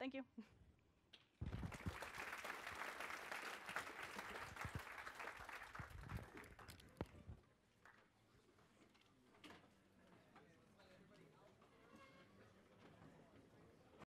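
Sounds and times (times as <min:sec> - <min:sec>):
audience applauding: 0:01.4 - 0:07.1.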